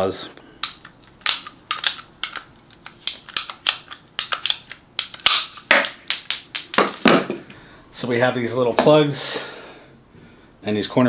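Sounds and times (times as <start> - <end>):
pipe snapping: 0.6 - 7.4.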